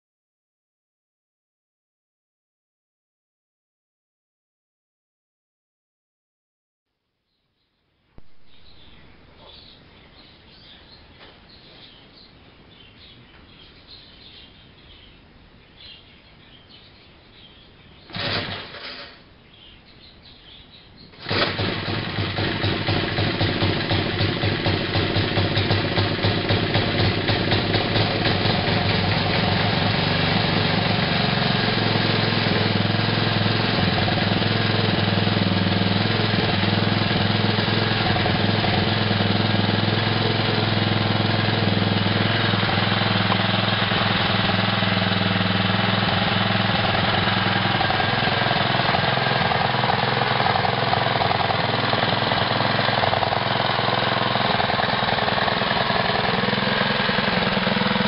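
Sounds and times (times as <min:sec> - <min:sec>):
lawn mower engine running: 0:18.1 - 0:19.3, 0:21.1 - 0:58.0.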